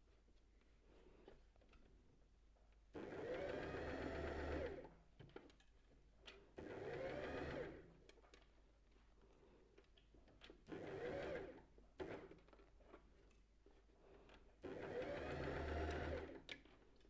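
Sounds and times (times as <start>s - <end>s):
sewing machine stitching: 3.0s - 4.9s, 6.6s - 7.9s, 10.7s - 12.6s, 14.6s - 16.6s.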